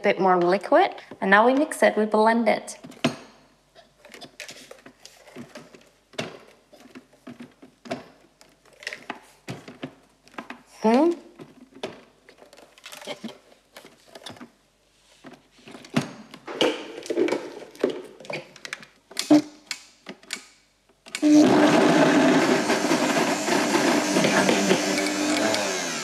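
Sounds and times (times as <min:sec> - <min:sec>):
blender motor chopping: 0:21.2 - 0:26.0.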